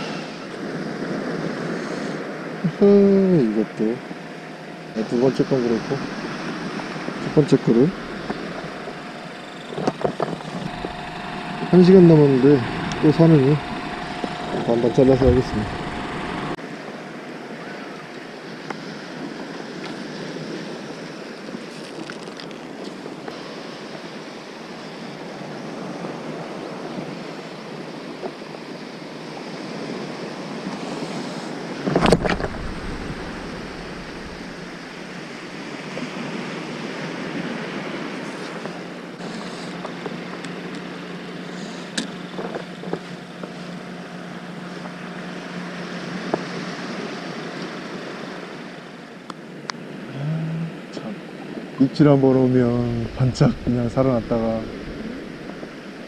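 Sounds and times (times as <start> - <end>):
wind on microphone: 4.9 - 16.6, 30.6 - 38.8, 52.6 - 56.0.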